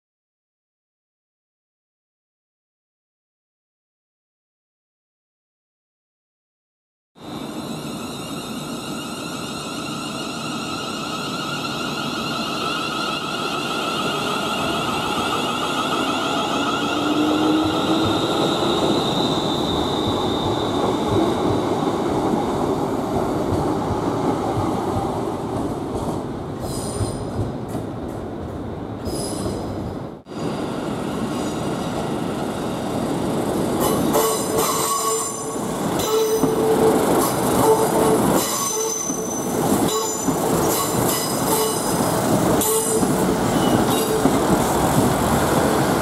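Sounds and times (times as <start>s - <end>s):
train wheels rumbling on rails: 7.3s - 46.0s
thin high wheel squeal: 7.4s - 20.8s.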